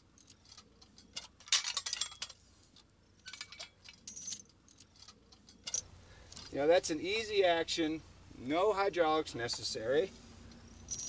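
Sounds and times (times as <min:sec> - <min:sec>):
chain links clinking: 0:00.1 - 0:02.4, 0:03.2 - 0:06.6, 0:10.6 - 0:11.0.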